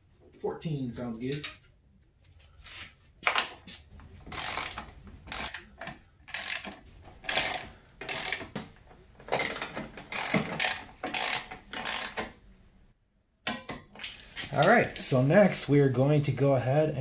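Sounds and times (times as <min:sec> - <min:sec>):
ratchet wrench clicking: 0:04.3 - 0:08.5, 0:09.4 - 0:12.2.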